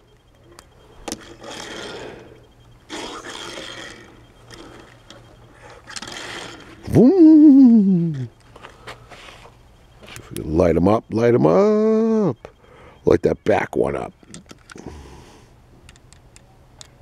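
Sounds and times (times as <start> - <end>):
toy car wheels rolling on board: 1.1 - 2.2, 5.9 - 6.8
man's drawn-out vocal sound: 6.8 - 8.3.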